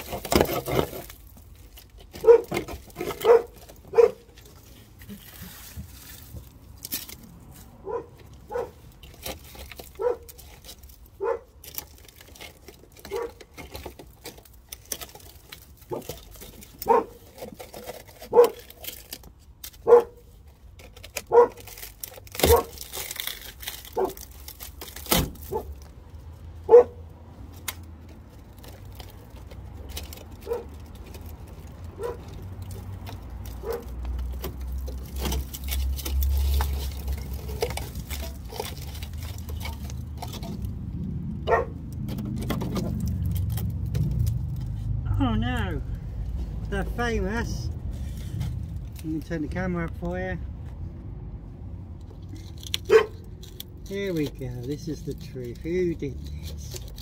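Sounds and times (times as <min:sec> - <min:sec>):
rusted sheet steel tearing: 0:00.0 - 0:46.0, 0:52.0 - 0:57.0
dog barking: 0:02.2 - 0:02.5, 0:03.2 - 0:04.2, 0:07.8 - 0:08.8, 0:10.0 - 0:10.3, 0:11.2 - 0:11.5, 0:13.1 - 0:13.4, 0:16.8 - 0:17.2, 0:18.3 - 0:18.6, 0:19.8 - 0:20.2, 0:21.3 - 0:21.6, 0:22.4 - 0:22.7, 0:26.7 - 0:27.0, 0:30.4 - 0:30.7, 0:32.0 - 0:32.2, 0:33.6 - 0:33.9, 0:41.5 - 0:41.7, 0:52.9 - 0:53.1.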